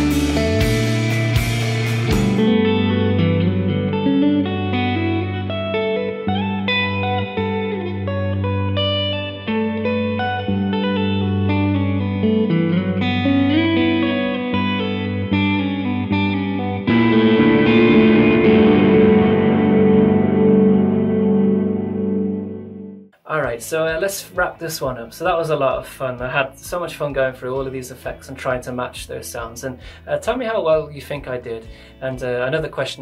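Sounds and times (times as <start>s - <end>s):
electric guitar melody with reverb: 0.0s - 23.2s.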